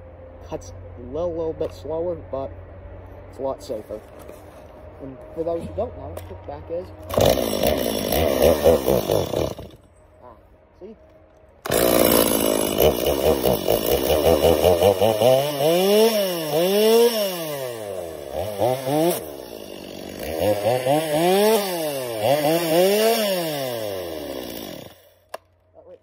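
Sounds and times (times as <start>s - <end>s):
chainsaw revving: 7.0s - 9.9s, 11.6s - 25.4s.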